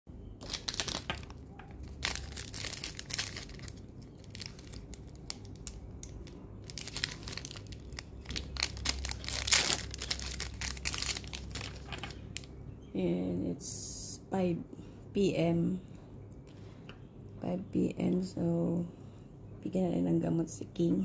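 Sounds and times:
plastic wrapper crinkling and tearing: 0.4 - 12.6.

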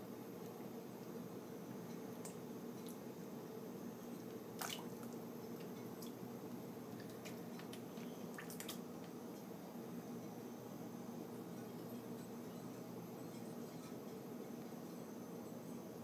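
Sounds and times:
steady low hum: 0.0 - 16.0
water splashing and dripping: 4.6 - 5.2, 7.0 - 8.8.

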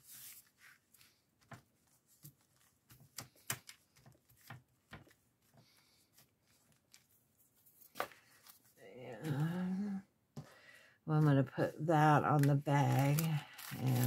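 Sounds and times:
paper rustling: 0.0 - 9.6, 11.2 - 14.0.

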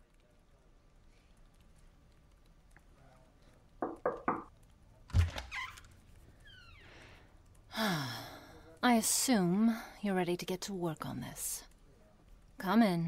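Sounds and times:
quick knocks: 3.8 - 4.5.

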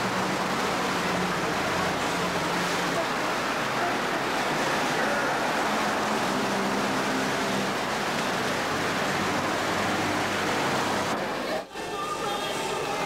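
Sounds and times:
busy street din: 0.0 - 13.0
faint voices: 1.5 - 6.3, 11.0 - 13.0.

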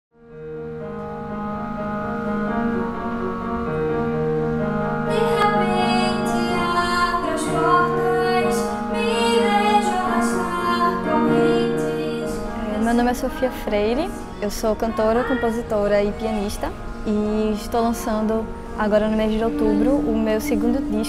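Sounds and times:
held keyboard chords: 0.2 - 21.0
woman singing: 5.1 - 21.0.

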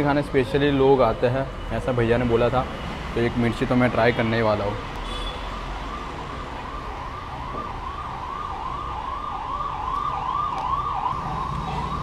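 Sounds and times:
siren yelping: 5.8 - 12.0.

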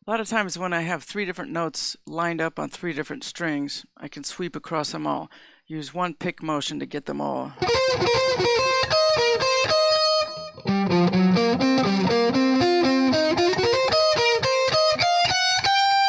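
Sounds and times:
electric guitar sweep-picked arpeggio: 7.6 - 16.0.

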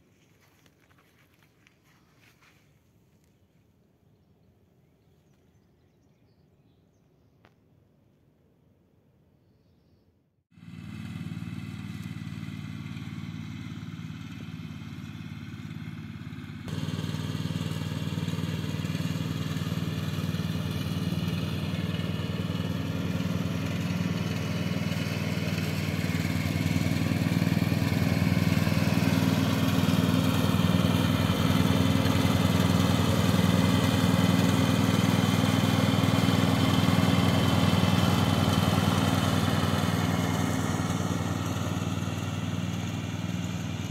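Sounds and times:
lawn tractor engine running: 10.6 - 43.9.

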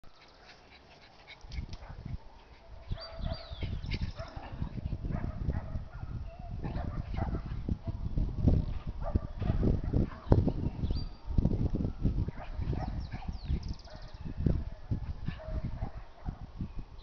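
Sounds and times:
small dogs barking and yelping: 0.1 - 8.1, 12.2 - 16.5
low rumbling on microphone: 1.5 - 17.0.

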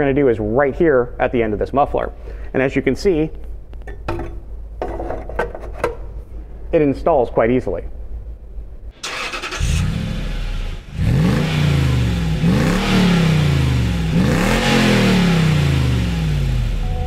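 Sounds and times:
car exhaust revving: 9.4 - 17.0.

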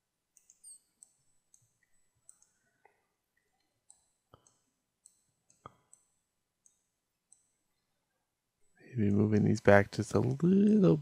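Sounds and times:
computer mouse and keyboard clicking: 0.3 - 7.6.

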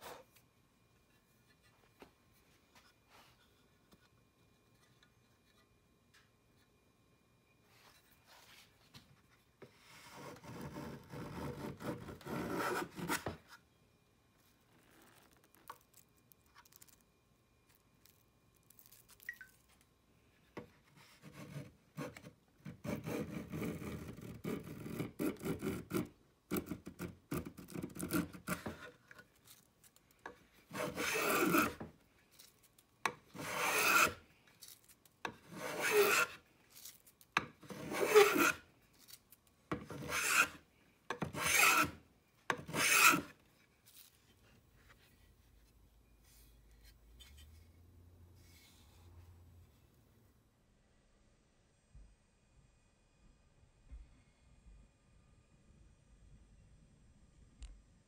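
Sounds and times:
hand plane shaving wood: 10.0 - 13.3, 30.7 - 31.8, 33.3 - 34.2, 35.4 - 36.4, 37.6 - 38.6, 39.8 - 40.6, 41.2 - 43.3.

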